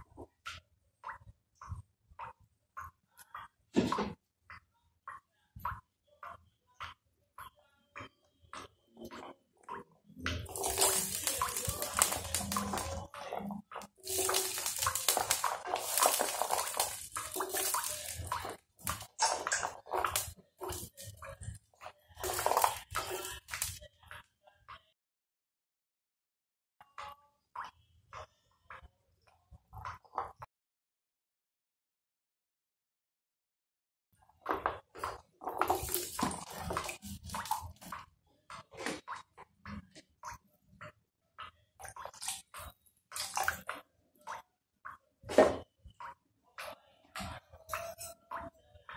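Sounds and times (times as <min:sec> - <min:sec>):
carrots splashing into water: 0:10.3 - 0:21.6, 0:22.2 - 0:23.8, 0:34.6 - 0:38.0, 0:41.8 - 0:43.8.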